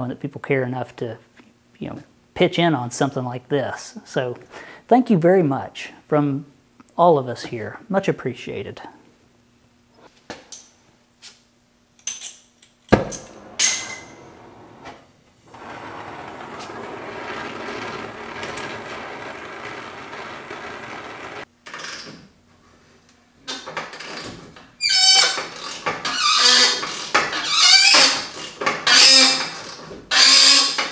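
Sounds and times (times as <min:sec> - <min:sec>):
metal squeaking: 0:13.0 - 0:21.5.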